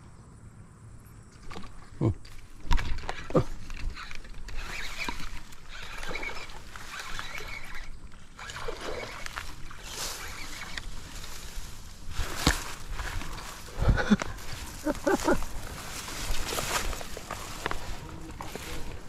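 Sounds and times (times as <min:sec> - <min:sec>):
rod handling noise: 0:01.4 - 0:19.0
water splashing: 0:01.4 - 0:19.0
fishing reel being cranked: 0:02.4 - 0:13.6.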